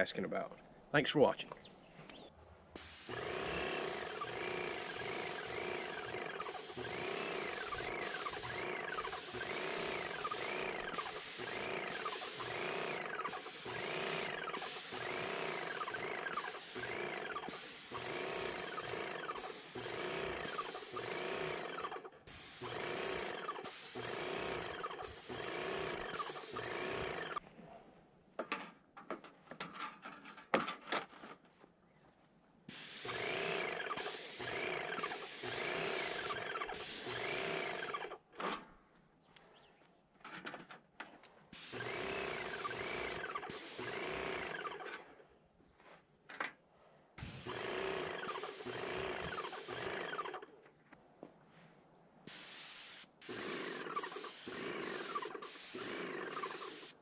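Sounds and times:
paint spraying hiss: 0:02.8 - 0:27.4, 0:32.7 - 0:38.0, 0:41.6 - 0:44.7, 0:47.2 - 0:50.2, 0:52.3 - 0:57.0
pump whine: 0:03.1 - 0:27.4.

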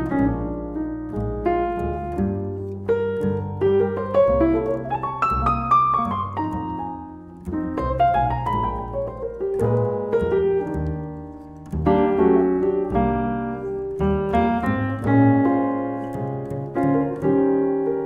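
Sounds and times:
acoustic keyboard jazz ballad: 0:00.0 - 0:18.0
plucked double bass: 0:00.0 - 0:18.0.

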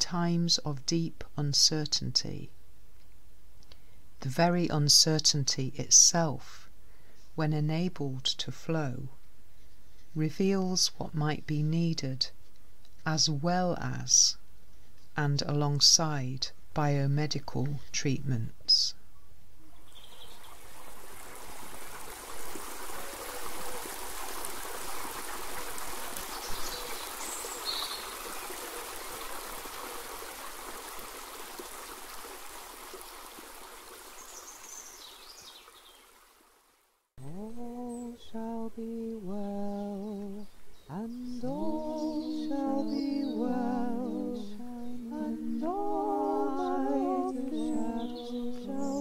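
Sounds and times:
rushing stream: 0:20.3 - 0:36.8
woman singing unaccompanied: 0:37.2 - 0:49.0.

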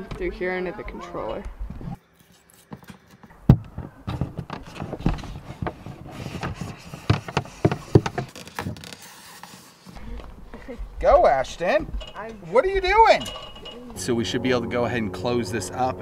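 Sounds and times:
cable scuffing and rustling: 0:01.7 - 0:10.8.

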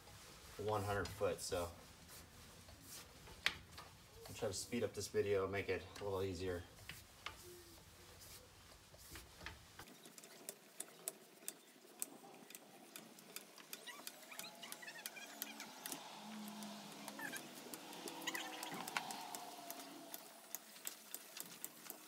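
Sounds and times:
hose reel clicking: 0:09.8 - 0:22.0
hose reel squeaks: 0:12.9 - 0:22.0.

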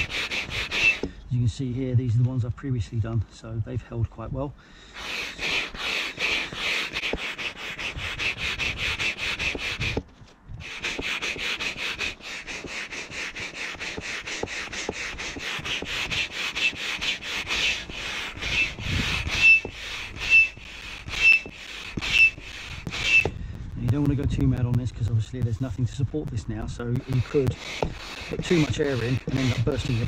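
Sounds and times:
hand pump hissing air: 0:00.0 - 0:01.2, 0:04.9 - 0:10.0, 0:10.6 - 0:23.4, 0:27.0 - 0:30.0
short high squeak: 0:00.7 - 0:01.1, 0:18.5 - 0:22.4, 0:23.0 - 0:23.4.

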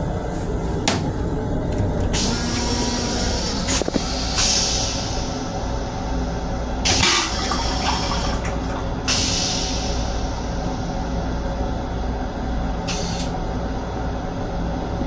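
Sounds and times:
train rumble: 0:00.0 - 0:06.8
toilet flushing: 0:01.8 - 0:05.6, 0:06.8 - 0:10.9.

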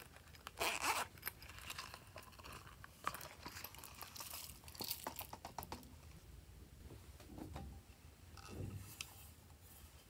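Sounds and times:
rubbery rustling: 0:00.0 - 0:05.4.

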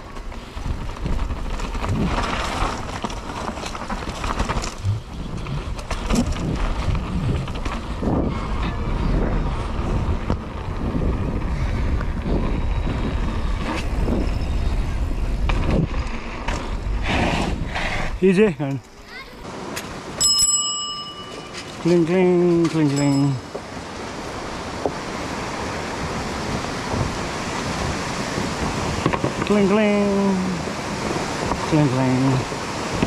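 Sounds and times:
bike knocks and rattles: 0:00.0 - 0:14.3, 0:15.3 - 0:16.9, 0:26.0 - 0:29.9
wind rumbling on microphone: 0:00.0 - 0:20.2, 0:21.2 - 0:33.0.

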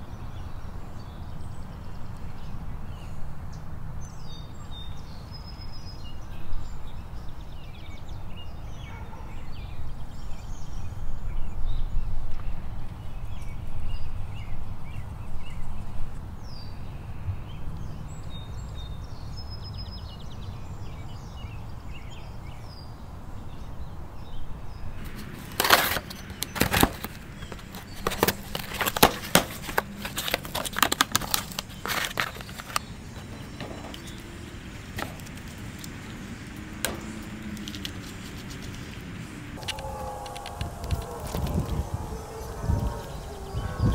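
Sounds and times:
cardboard box opened and handled: 0:25.4 - 0:32.8.

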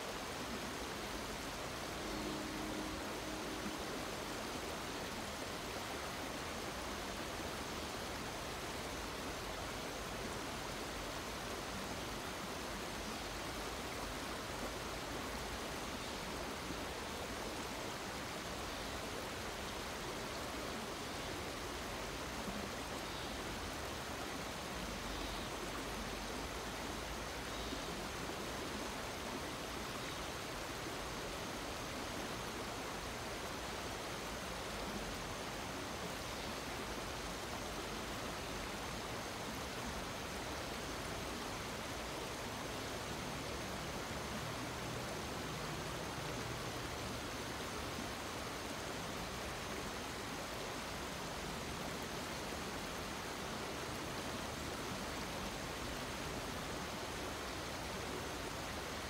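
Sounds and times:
river running over rocks: 0:00.0 - 0:59.0.

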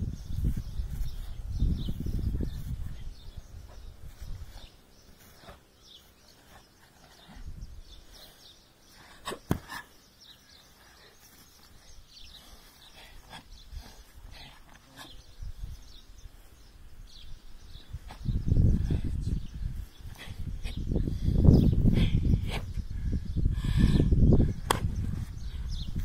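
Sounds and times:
wind rumble on microphone: 0:00.0 - 0:04.7, 0:17.0 - 0:26.0
sharp snap of movement: 0:24.6 - 0:24.9.

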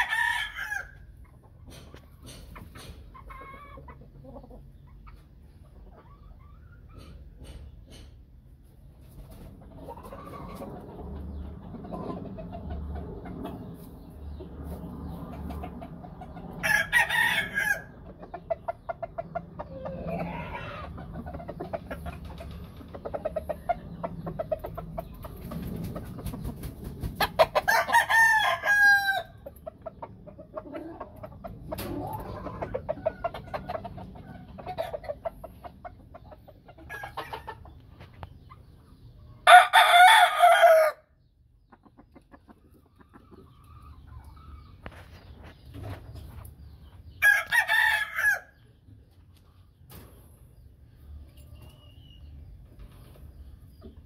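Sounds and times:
roosters crowing: 0:00.0 - 0:01.2, 0:16.5 - 0:18.0, 0:19.6 - 0:21.0, 0:27.2 - 0:29.6, 0:39.4 - 0:41.2, 0:47.2 - 0:48.6
hens clucking: 0:00.6 - 0:47.5.

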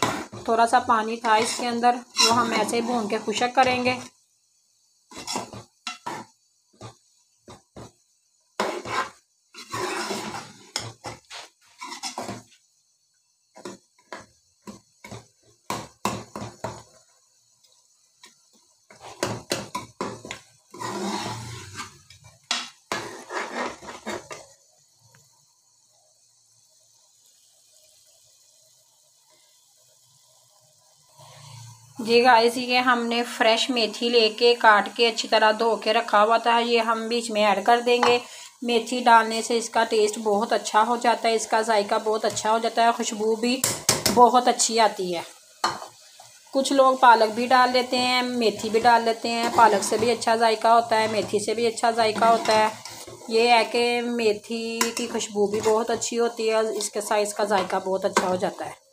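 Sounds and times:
metal spoon scraping a pot: 0:01.3 - 0:04.1, 0:05.1 - 0:06.9, 0:08.6 - 0:12.4, 0:18.9 - 0:22.1, 0:22.9 - 0:24.4, 0:47.7 - 0:53.8, 0:54.8 - 0:56.1.

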